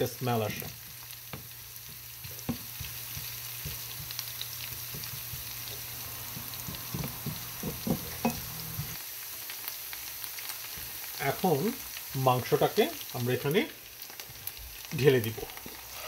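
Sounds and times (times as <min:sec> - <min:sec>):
onions sizzling in oil: 0:00.0 - 0:16.0
spatula knocking against pan: 0:04.8 - 0:05.5, 0:06.3 - 0:08.5.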